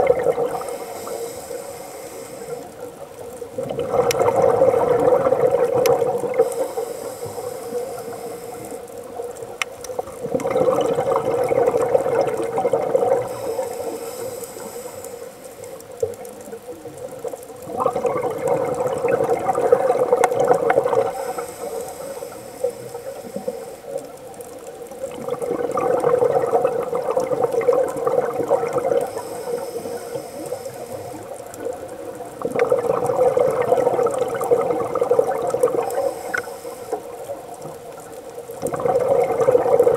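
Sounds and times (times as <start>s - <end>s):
exhaust bubbles underwater: 0.0s - 39.9s
regulator inhale hiss: 0.5s - 3.0s, 6.3s - 9.2s, 13.2s - 16.0s, 21.0s - 24.1s, 28.9s - 31.6s, 35.7s - 37.4s.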